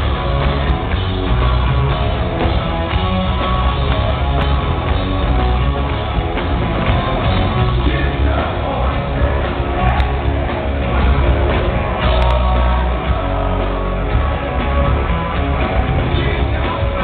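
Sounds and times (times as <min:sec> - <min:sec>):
drums: 0:00.0 - 0:17.0
electric guitar: 0:00.0 - 0:17.0.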